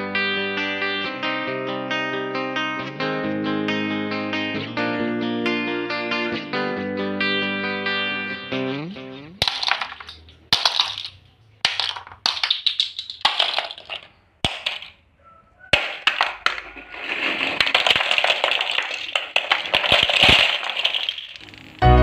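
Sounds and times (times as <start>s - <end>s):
plastic toy bricks clattering: 9.4s - 15.0s, 15.7s - 21.5s.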